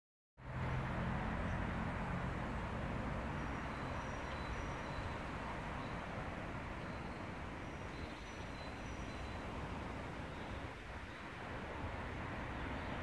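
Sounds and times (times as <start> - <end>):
outdoor background rumble: 0.4 - 7.2.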